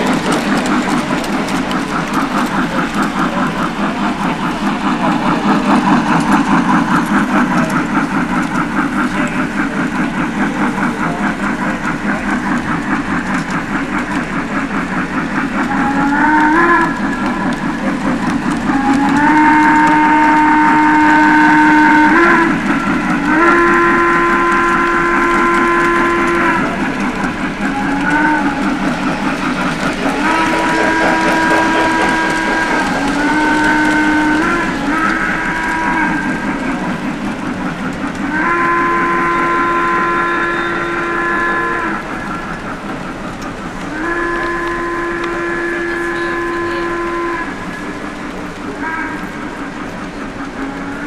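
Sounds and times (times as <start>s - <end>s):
electronic steam whistle blasts: 38.3s - 42.2s, 43.9s - 47.8s.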